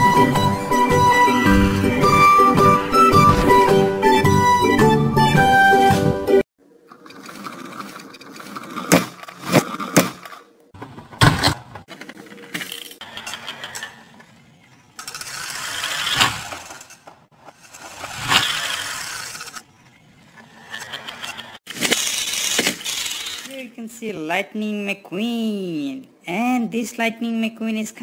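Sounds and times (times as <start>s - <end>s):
toy car rolling across glass: 12.5s - 19.7s, 20.3s - 23.5s
toy cars clacking on glass: 14.9s - 19.7s, 20.6s - 23.5s.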